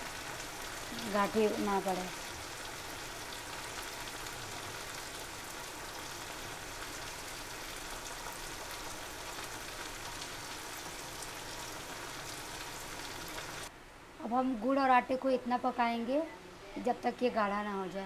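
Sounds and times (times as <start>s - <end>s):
syrup boiling and crackling: 0.0s - 13.7s.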